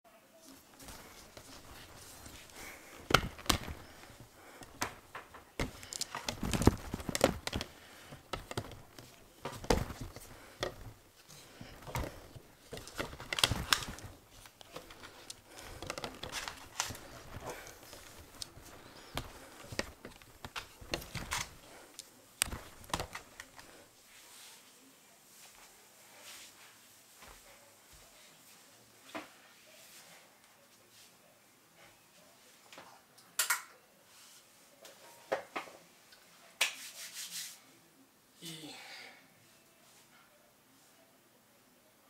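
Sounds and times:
fabric rustling: 0:00.4 - 0:24.6.

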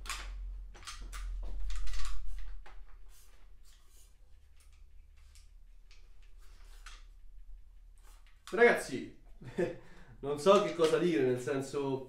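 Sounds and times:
rifle handling rustles and clicks: 0:00.0 - 0:03.0, 0:03.6 - 0:07.1, 0:10.5 - 0:11.1.

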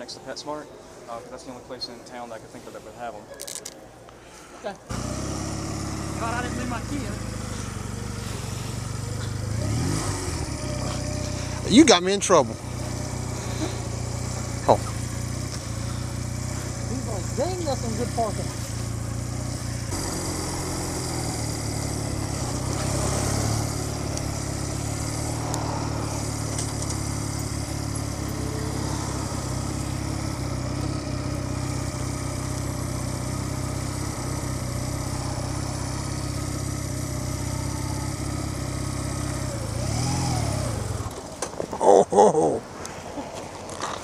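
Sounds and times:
motorcycle engine running: 0:04.9 - 0:41.7.

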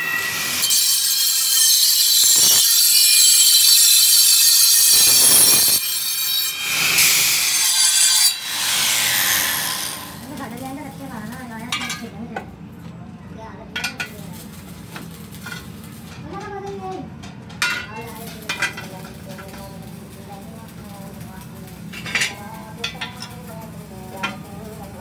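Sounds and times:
angle grinder grinding metal: 0:00.0 - 0:12.1.

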